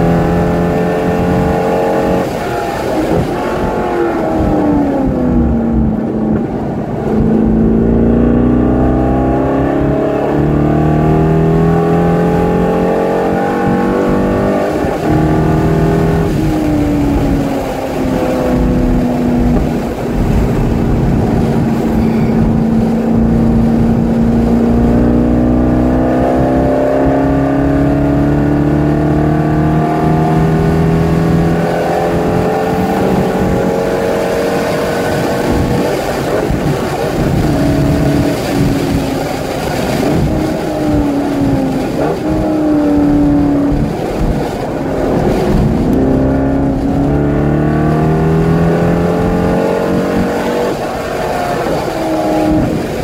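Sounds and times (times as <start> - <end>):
car engine revving from cabin: 7.1 - 17.4, 18.1 - 35.7, 44.9 - 52.8.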